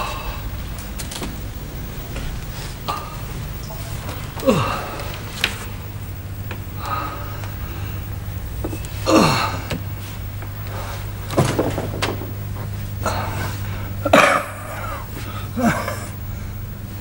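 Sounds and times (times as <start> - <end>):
low hum: 0.0 - 17.0
man gasping and groaning: 4.3 - 5.2.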